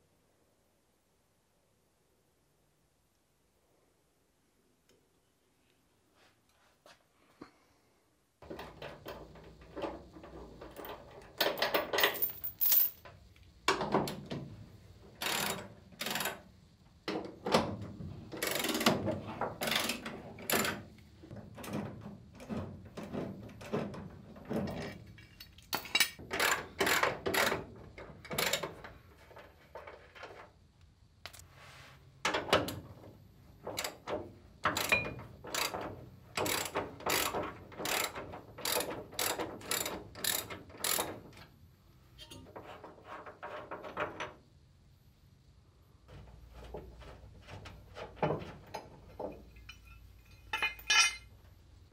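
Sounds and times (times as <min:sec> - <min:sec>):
metal tools handled: 0:48.7 - 0:51.3.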